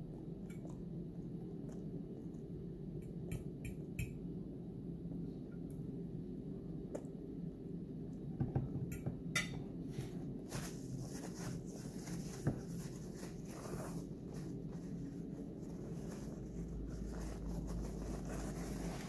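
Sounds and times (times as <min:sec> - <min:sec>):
steady low hum: 0:00.0 - 0:19.0
paper napkin rustling: 0:09.9 - 0:19.0.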